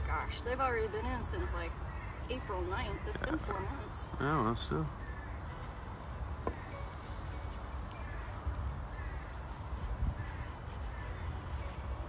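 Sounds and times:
crow caws: 0:01.8 - 0:03.8, 0:04.9 - 0:05.6, 0:06.4 - 0:07.1, 0:07.9 - 0:11.5
wind rumble on microphone: 0:08.4 - 0:11.0.

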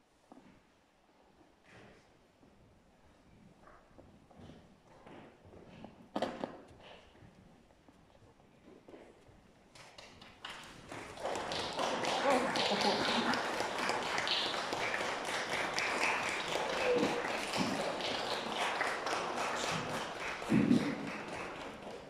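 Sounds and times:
audience applauding: 0:10.4 - 0:22.0
voices: 0:12.0 - 0:13.6.

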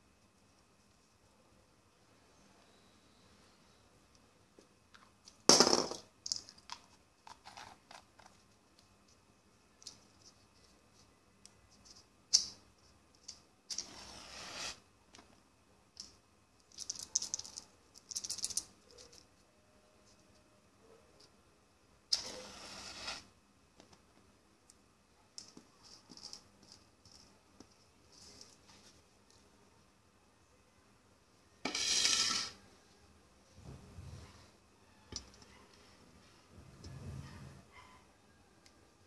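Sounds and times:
scrape on tabletop: 0:13.8 - 0:14.8, 0:22.2 - 0:23.3, 0:31.6 - 0:32.6.

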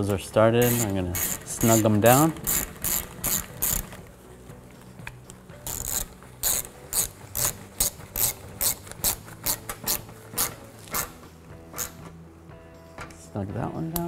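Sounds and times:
hand ratchet clicking: 0:00.6 - 0:04.1, 0:05.0 - 0:12.1.

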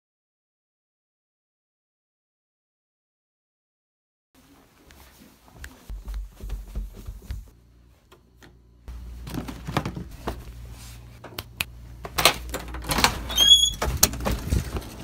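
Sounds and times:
door locks clicking and clattering: 0:12.0 - 0:14.2
door squeaking: 0:12.6 - 0:14.3.

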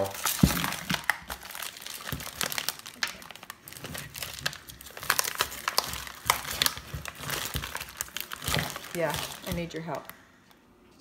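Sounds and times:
plastic bag crinkling: 0:00.0 - 0:10.2.

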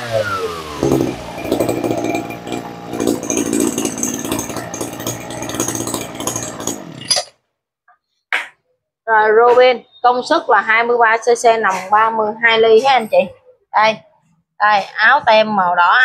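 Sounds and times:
chainsaw engine idling unevenly: 0:00.0 - 0:07.1.

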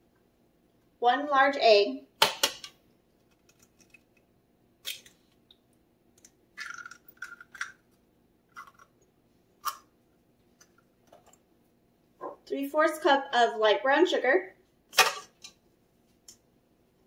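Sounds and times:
eggshell cracking: 0:03.2 - 0:05.5, 0:06.1 - 0:09.9.

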